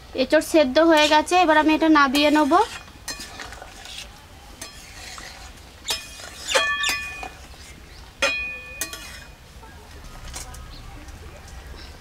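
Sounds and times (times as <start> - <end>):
metal ladle scraping pan: 0.9 - 9.5
ringing metallic clanks: 5.9 - 7.4, 8.2 - 9.4.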